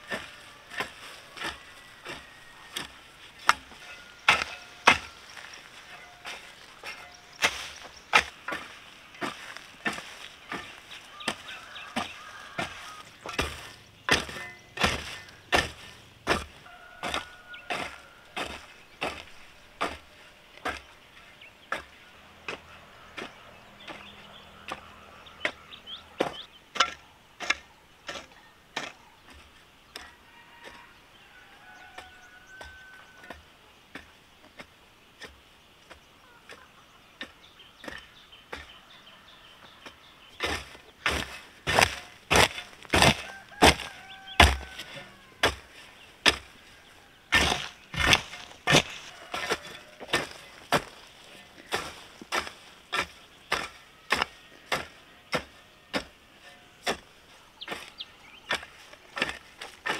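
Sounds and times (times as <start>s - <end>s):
blade chopping wood: 40.4s - 44.8s, 47.3s - 51.1s.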